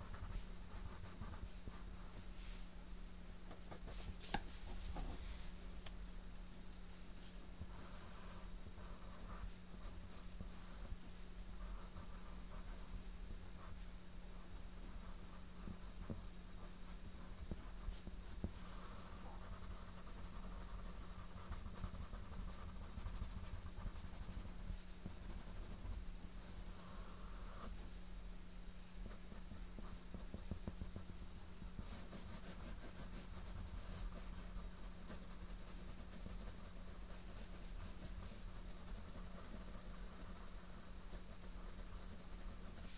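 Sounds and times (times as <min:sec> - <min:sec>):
steady low hum: 0:00.0 - 0:42.9
pencil scratching on paper: 0:17.4 - 0:27.9, 0:29.0 - 0:42.9.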